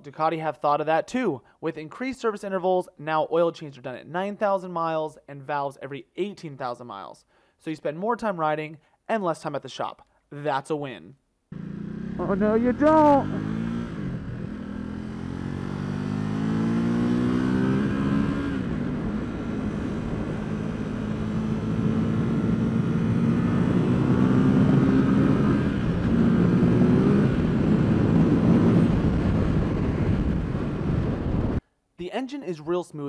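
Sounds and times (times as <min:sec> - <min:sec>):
motorcycle engine accelerating: 0:11.5 - 0:31.6.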